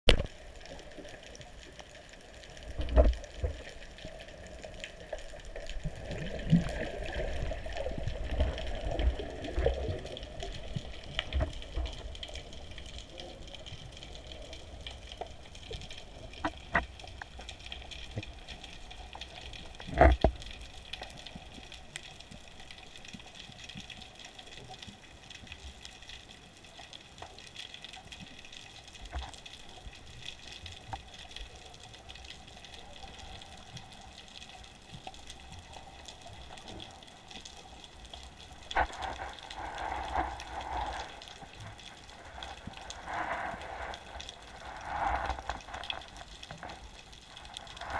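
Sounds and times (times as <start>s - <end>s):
rush of water: 0.1s - 25.0s, 26.8s - 47.9s
faint clicks: 0.1s - 47.9s
underwater water hiss: 38.6s - 47.9s.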